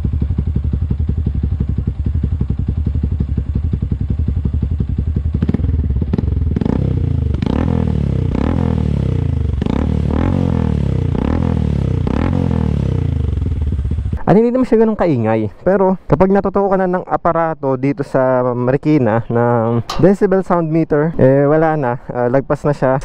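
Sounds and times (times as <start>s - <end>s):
motorcycle engine idling and revving: 0.0s - 14.4s.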